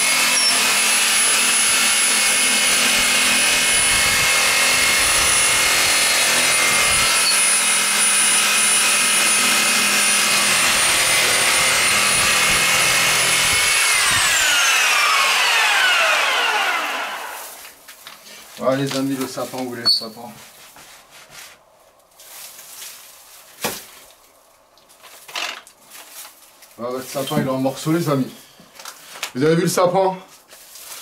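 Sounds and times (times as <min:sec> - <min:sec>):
reciprocating saw motor whine: 0:00.0 - 0:17.6
saw blade rasping in wood: 0:00.0 - 0:17.6.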